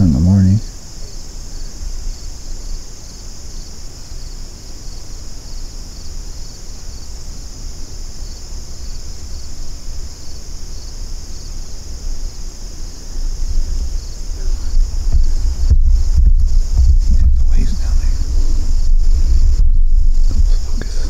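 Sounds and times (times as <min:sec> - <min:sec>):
insects trilling: 0:00.0 - 0:21.0
low rumble: 0:13.4 - 0:21.0.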